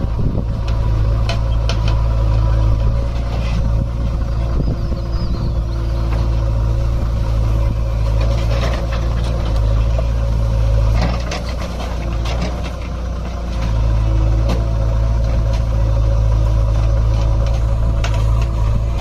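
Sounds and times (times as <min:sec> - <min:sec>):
diesel engine under load: 0:00.0 - 0:19.0.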